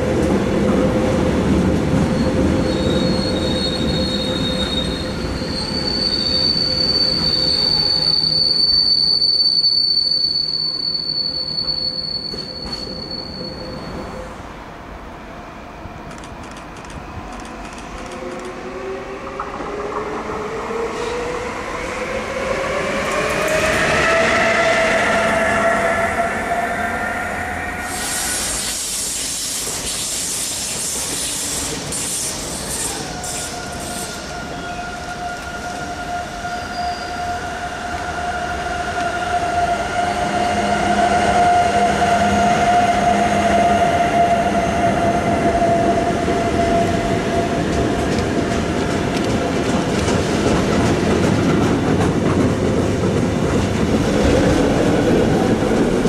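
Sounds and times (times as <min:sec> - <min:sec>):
electric locomotive whine: 0:00.0 - 0:56.0
train wheel squeal: 0:02.0 - 0:14.4, 0:16.5 - 0:48.4.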